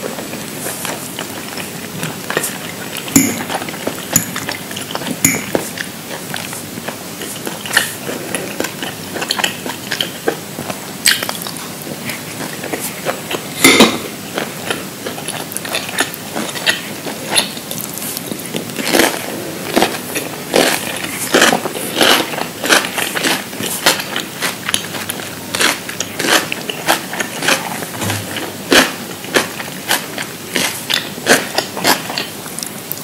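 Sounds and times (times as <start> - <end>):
person chewing food: 0.1 - 33.0.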